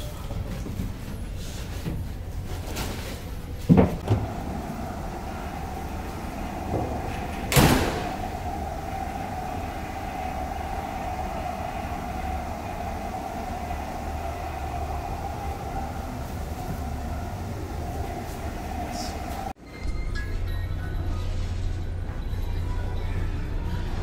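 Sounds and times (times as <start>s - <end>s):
mid-pitched hum: 4.0s - 19.6s
ship machinery drone: 4.0s - 19.6s.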